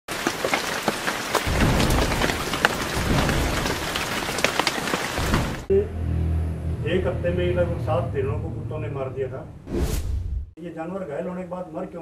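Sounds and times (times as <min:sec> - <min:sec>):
rain falling: 0:00.1 - 0:05.7
low rumble of thunder: 0:01.4 - 0:04.6.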